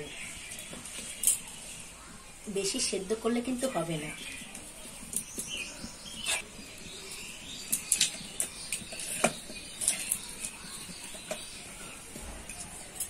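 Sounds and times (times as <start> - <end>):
wood fire crackling: 0.0 - 13.0
firewood sticks clicking and knocking: 4.2 - 13.0.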